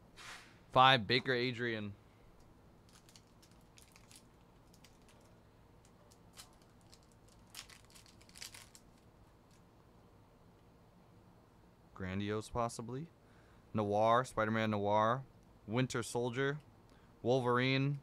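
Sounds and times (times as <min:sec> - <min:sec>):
foil wrapper crinkling: 0:02.9 - 0:05.3, 0:06.0 - 0:09.1.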